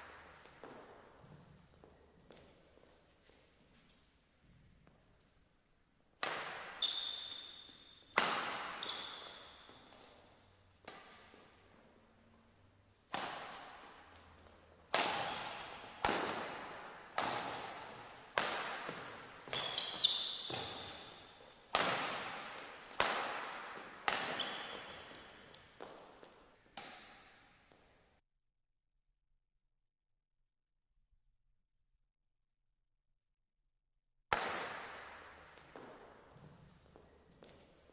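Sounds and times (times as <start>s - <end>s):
racket striking shuttlecock: 0.0s - 1.2s, 6.2s - 11.7s, 13.1s - 27.4s, 34.3s - 36.6s
shoe squeaks on court: 0.1s - 3.1s, 6.5s - 10.6s, 17.1s - 23.4s, 24.0s - 26.0s, 34.3s - 37.9s.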